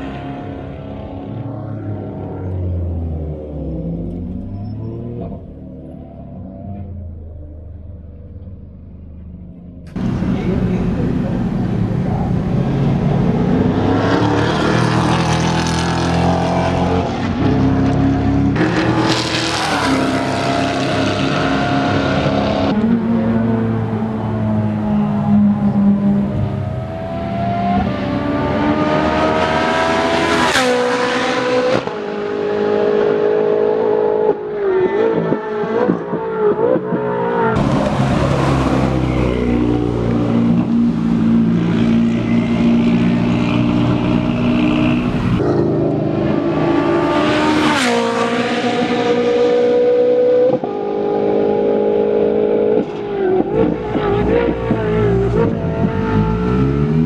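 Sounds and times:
race car engines accelerating: 0:00.0 - 0:57.0.

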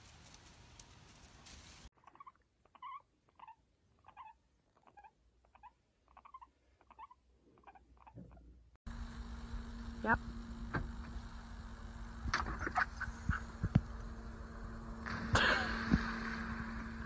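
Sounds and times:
guinea pigs squeaking: 0:02.0 - 0:08.5.

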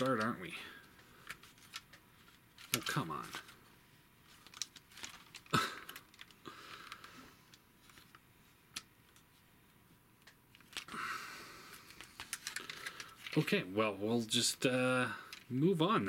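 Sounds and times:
handling rustle: 0:00.0 - 0:09.4, 0:11.8 - 0:13.5.

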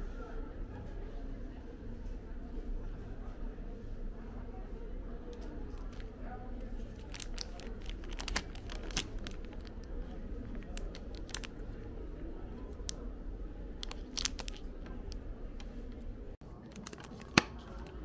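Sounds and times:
low background hum: 0:00.0 - 0:18.0
plastic packaging crinkling: 0:06.8 - 0:11.9, 0:13.8 - 0:15.2.

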